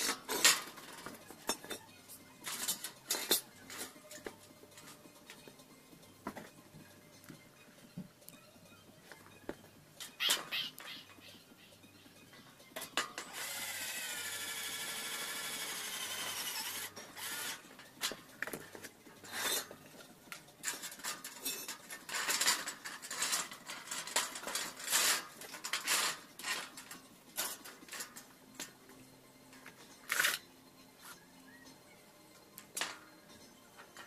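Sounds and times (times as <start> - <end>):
metal parts and tools clinking: 0.0 - 6.6, 12.4 - 13.5, 16.5 - 30.5.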